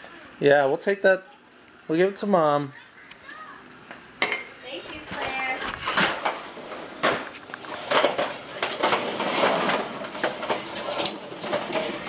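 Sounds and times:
hard objects clattering: 0:04.2 - 0:12.0.

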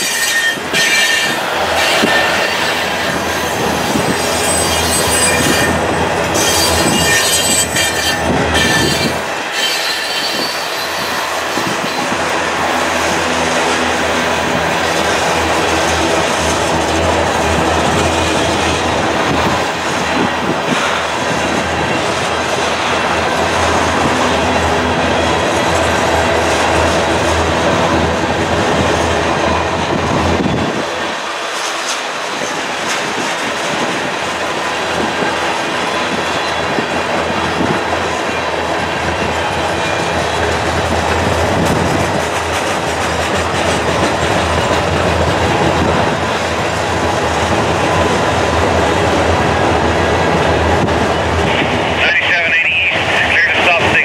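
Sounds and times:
train wheels rumbling and clattering: 0:00.0 - 0:54.0.

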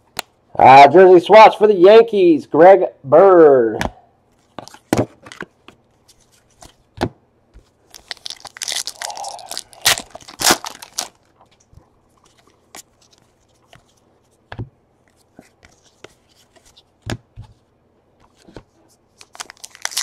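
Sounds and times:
foil wrapper crinkling and tearing: 0:07.9 - 0:11.4, 0:19.2 - 0:20.0.

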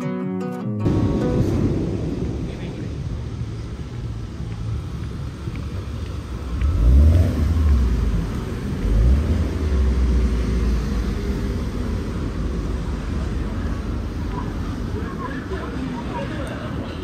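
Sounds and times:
traffic rumbling: 0:00.8 - 0:17.0.

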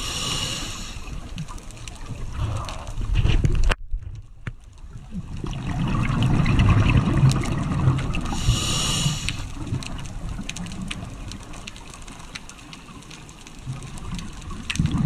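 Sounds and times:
regulator inhalation hiss: 0:00.0 - 0:01.2, 0:08.3 - 0:09.6
exhaled bubbles underwater: 0:04.8 - 0:11.7, 0:13.6 - 0:15.0.

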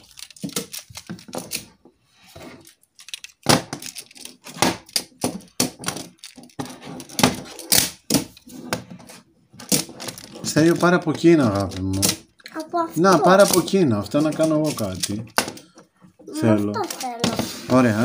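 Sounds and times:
plastic magnetic tiles clacking: 0:02.6 - 0:08.4, 0:09.6 - 0:15.8.

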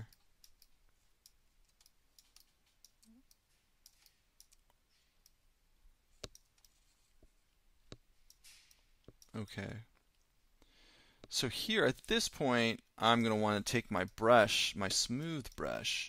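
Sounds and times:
mouse and keyboard clicks: 0:01.3 - 0:05.4, 0:06.2 - 0:06.8.

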